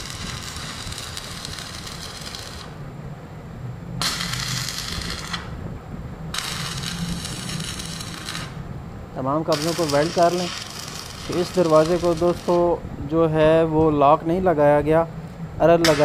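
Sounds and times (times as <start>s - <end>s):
arc welding crackling: 0.0s - 2.8s, 4.0s - 5.6s, 6.3s - 12.8s.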